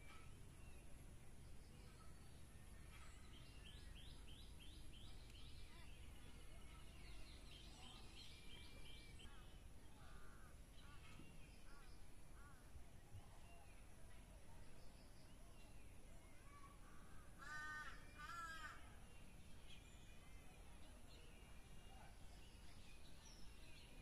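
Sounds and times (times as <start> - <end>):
faint birdsong: 0.0 - 24.0.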